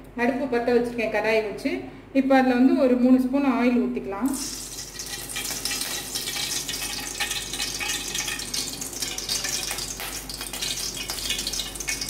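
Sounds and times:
oil hissing and crackling: 0:04.4 - 0:12.0.

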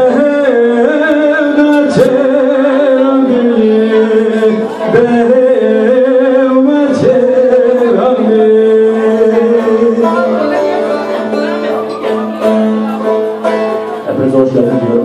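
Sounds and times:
men singing into microphones: 0:00.0 - 0:12.4
lute playing: 0:00.0 - 0:15.0.

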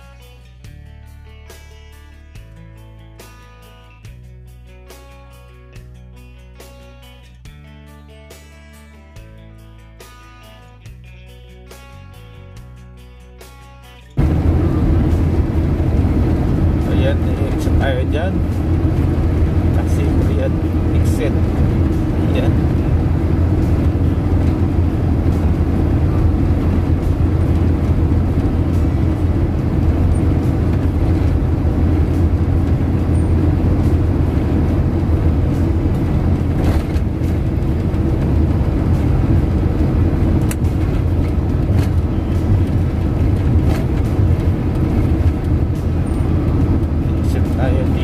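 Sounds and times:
car driving on highway: 0:14.2 - 0:48.0.

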